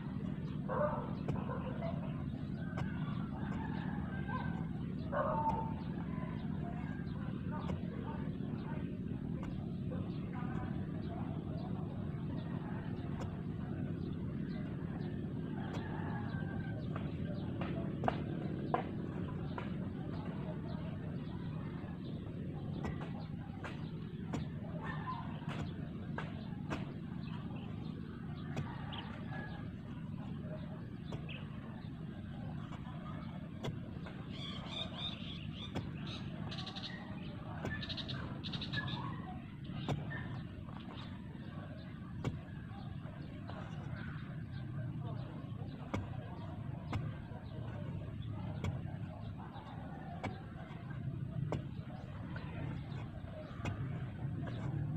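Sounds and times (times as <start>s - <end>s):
low outdoor rumble: 0.0s - 54.9s
hoe chopping the ground: 0.1s - 12.2s, 12.9s - 21.3s, 21.9s - 54.9s
distant rooster crowing: 0.7s - 7.7s, 15.4s - 18.2s.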